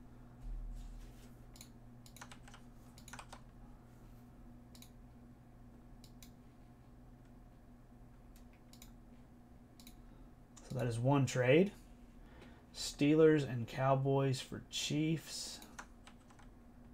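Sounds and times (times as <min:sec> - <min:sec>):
low electrical hum: 0:00.0 - 0:16.9
computer keyboard keystrokes: 0:01.6 - 0:03.4, 0:15.6 - 0:16.5.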